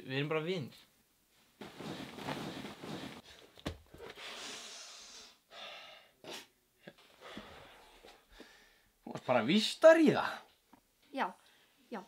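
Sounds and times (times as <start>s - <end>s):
person breathing hard: 2.0s - 6.2s, 7.2s - 8.9s
sharp sniffs: 4.1s - 5.4s.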